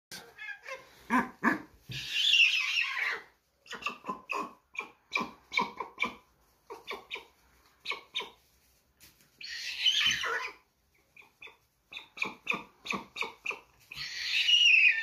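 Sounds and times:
stork chick yelping calls: 0:00.4 - 0:08.4, 0:09.4 - 0:15.0.

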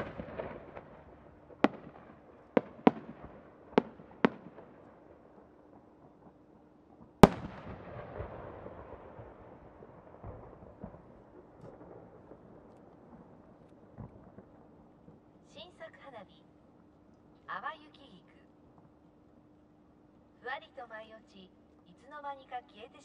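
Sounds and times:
firework boom echoing: 0:00.0 - 0:04.8, 0:07.2 - 0:14.6.

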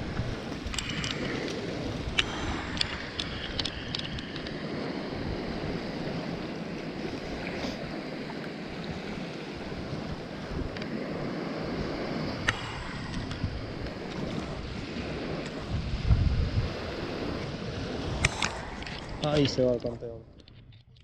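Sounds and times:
small waves washing on sand: 0:00.0 - 0:20.1
wind on microphone: 0:00.0 - 0:21.0
sharp clicks: 0:00.6 - 0:04.6.

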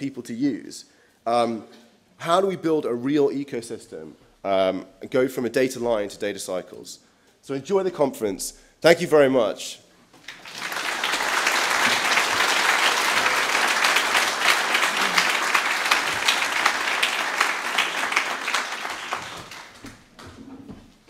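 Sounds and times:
audience applauding: 0:10.2 - 0:20.2.

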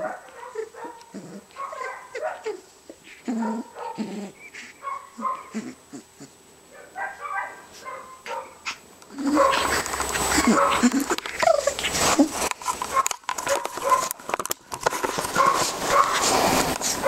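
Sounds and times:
puppy yipping and whining: 0:00.1 - 0:06.3, 0:07.0 - 0:12.4.

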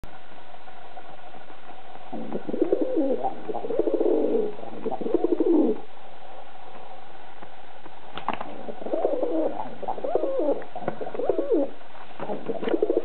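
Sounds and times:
pigeon cooing: 0:02.1 - 0:05.9, 0:08.4 - 0:13.0.

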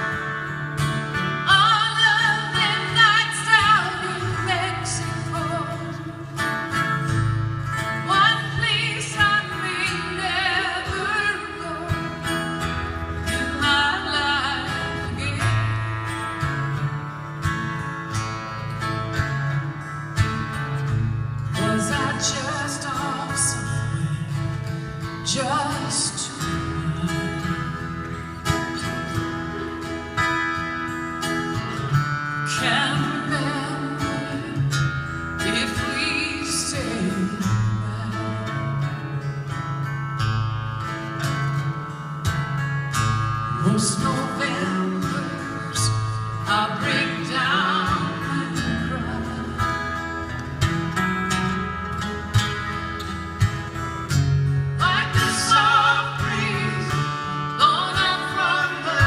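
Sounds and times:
strummed acoustic guitars: 0:00.0 - 0:59.0
woman singing: 0:01.4 - 0:06.5, 0:07.8 - 0:12.4, 0:13.2 - 0:16.8, 0:21.5 - 0:28.1, 0:32.4 - 0:39.0, 0:43.5 - 0:50.0, 0:54.8 - 0:59.0.

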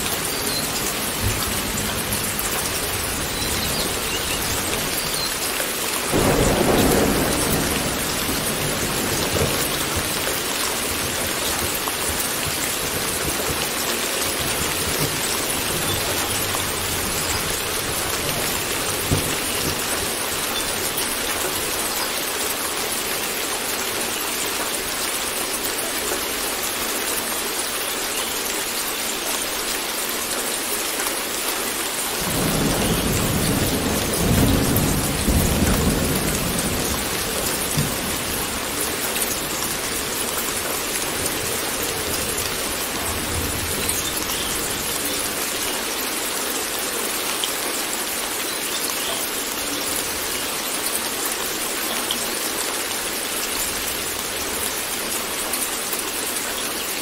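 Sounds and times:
steady rain falling: 0:00.0 - 0:57.0
thunder rumbling: 0:06.1 - 0:21.7, 0:32.2 - 0:44.9.

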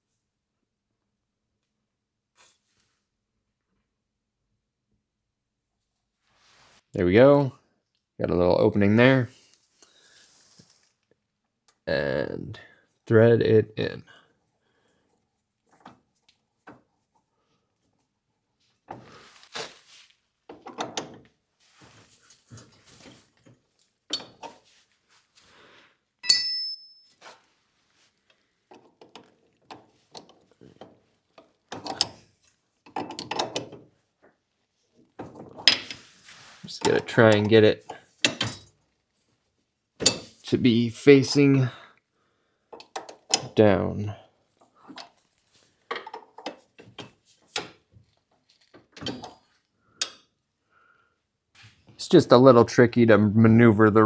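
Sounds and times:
wrench clinking on metal: 0:24.1 - 0:24.6, 0:26.2 - 0:27.2, 0:32.8 - 0:33.8, 0:35.6 - 0:36.0, 0:38.2 - 0:38.8, 0:40.0 - 0:40.4, 0:50.0 - 0:50.3
ringing metallic clink: 0:26.2 - 0:27.2.

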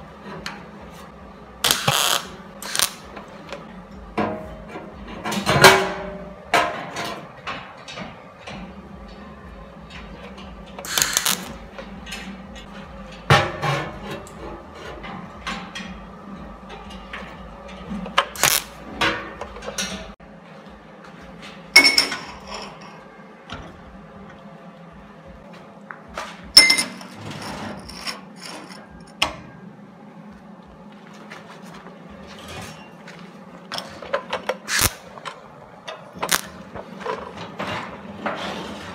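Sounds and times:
arc welding crackling bursts: 0:01.6 - 0:03.1, 0:10.8 - 0:11.7, 0:18.3 - 0:18.8, 0:34.7 - 0:35.1, 0:36.3 - 0:36.6.

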